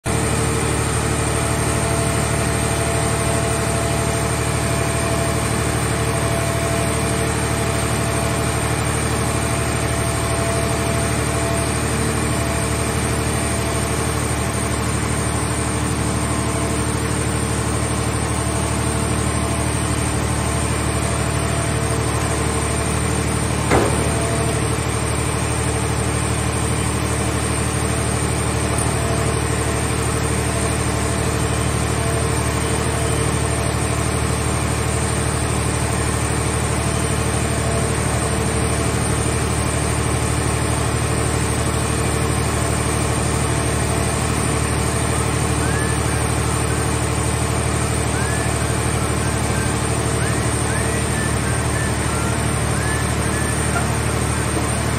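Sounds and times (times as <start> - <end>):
baler engine and hydraulics droning: 0.1 - 54.9
whining tones: 19.4 - 30.0, 45.2 - 54.9
metal clank: 23.6 - 25.1.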